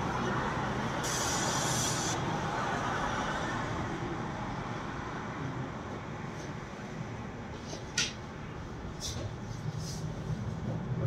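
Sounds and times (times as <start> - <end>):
traffic noise: 0.0 - 11.0
sharp hiss: 1.0 - 2.2.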